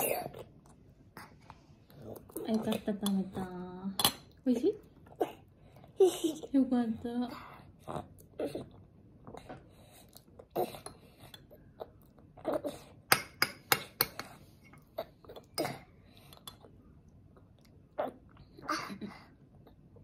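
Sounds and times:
soft chewing: 0.0s - 6.5s, 7.4s - 13.1s, 14.0s - 20.0s.

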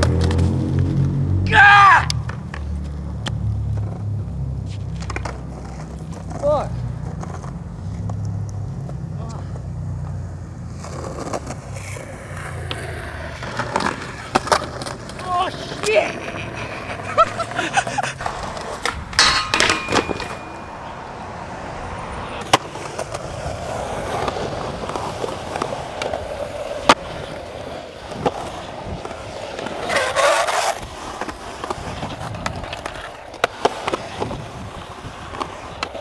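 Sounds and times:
skateboard cracks and landings: 0.0s - 0.9s, 10.8s - 16.0s, 18.2s - 36.0s
skateboard grinding: 0.0s - 1.4s, 2.1s - 36.0s
skateboard wheels rolling on concrete: 0.0s - 36.0s.

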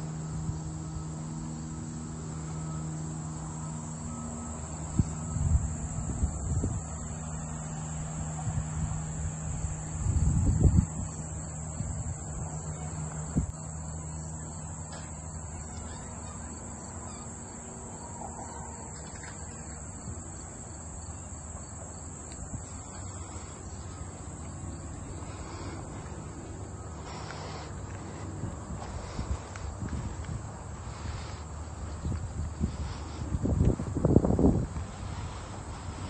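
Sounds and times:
insects trilling: 0.0s - 36.0s
faint low rumble: 22.2s - 36.0s.

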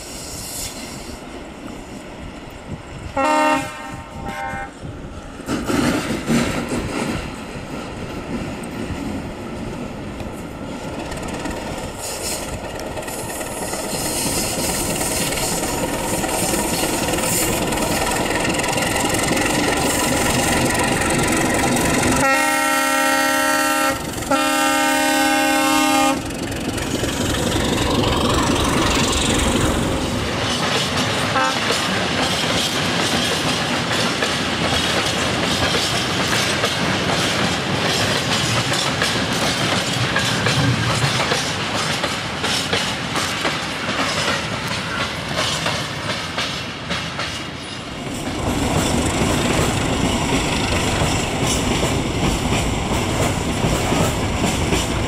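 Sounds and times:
diesel locomotive running: 0.0s - 55.0s
train wheels clickety-clack: 0.0s - 55.0s
multi-tone locomotive horn: 3.1s - 4.8s, 22.1s - 26.3s, 31.3s - 31.8s.

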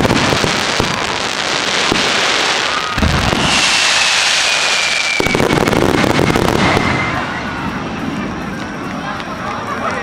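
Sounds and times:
loud hiss: 0.0s - 7.6s
fireworks crackling and bursting: 0.0s - 10.0s
deep firework boom: 1.8s - 8.7s
long falling whistle: 2.3s - 8.6s.

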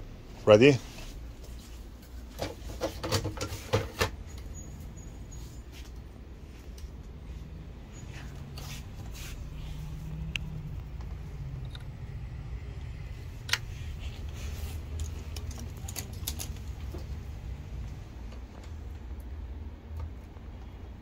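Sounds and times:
low steady hum: 0.0s - 21.0s
plastic and metal parts clicking: 14.9s - 17.1s.

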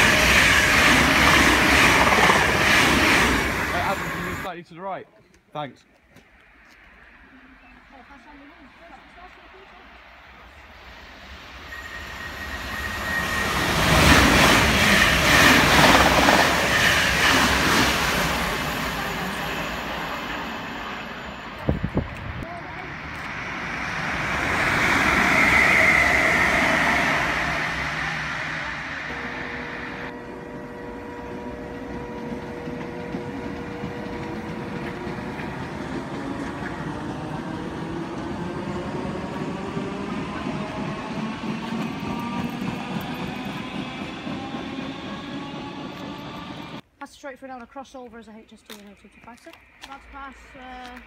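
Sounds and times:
electric train passing: 0.0s - 4.8s, 6.2s - 46.8s
thin high whine: 11.1s - 14.2s, 18.3s - 31.9s.

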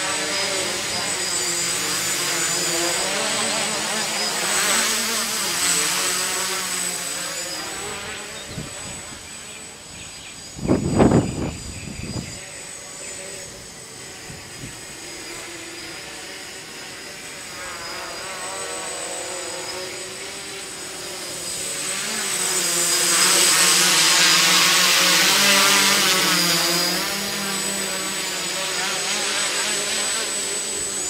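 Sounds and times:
quadcopter propellers buzzing: 0.0s - 31.0s.

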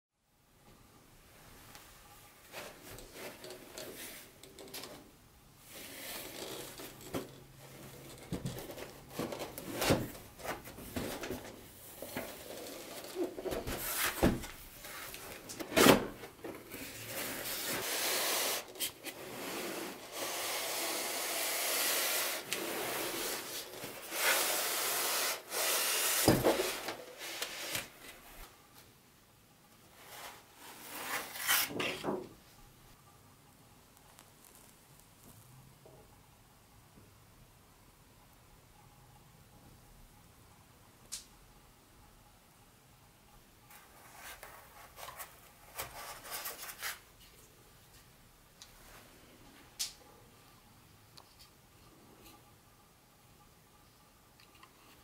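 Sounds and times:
cardboard scraping: 5.7s - 28.2s, 30.0s - 32.2s
cardboard rubbing and sliding: 8.3s - 16.1s, 16.7s - 28.2s, 30.0s - 32.1s.

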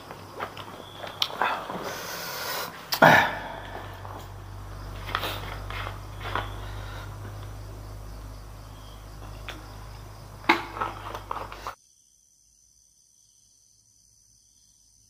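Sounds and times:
steady low hum: 0.0s - 11.8s.

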